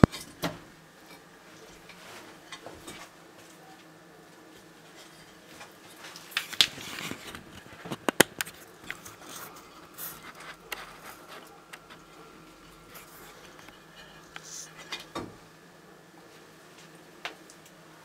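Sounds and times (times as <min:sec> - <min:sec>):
lizard crunching food: 0:04.8 - 0:15.1.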